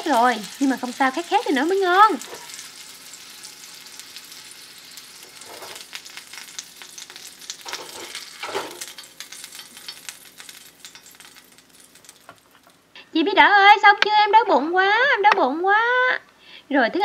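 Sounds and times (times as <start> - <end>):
sausages sizzling in oil: 0.0 - 13.0.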